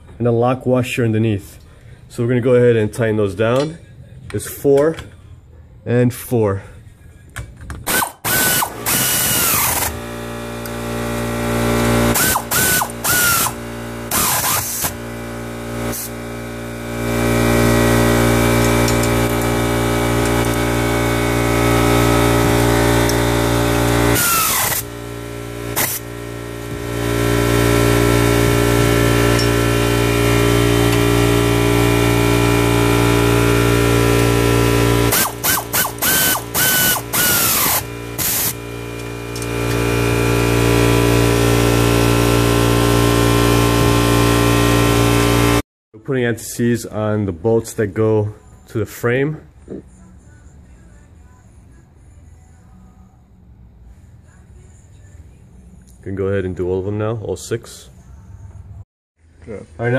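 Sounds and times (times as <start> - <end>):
steady mechanical drone: 7.0 - 45.6
air ratchet whining: 7.8 - 10.0, 11.7 - 15.0, 21.8 - 30.1, 34.7 - 39.9.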